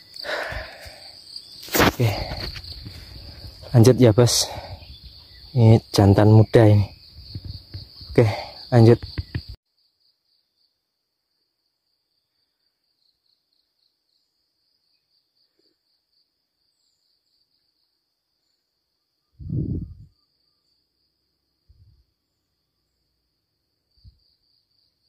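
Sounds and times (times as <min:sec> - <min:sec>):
insects chirring: 0:00.0 - 0:25.0
thump on microphone: 0:07.2 - 0:08.2, 0:09.0 - 0:09.6.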